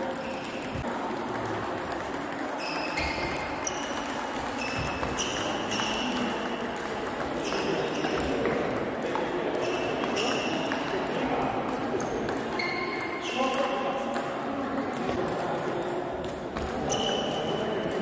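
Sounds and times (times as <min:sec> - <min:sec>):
table tennis ball pings: 0:00.2 - 0:10.9.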